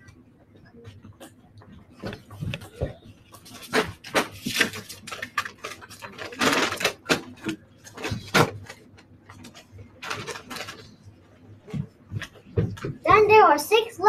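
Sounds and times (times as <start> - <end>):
paper rustling and crinkling: 2.0 - 11.0.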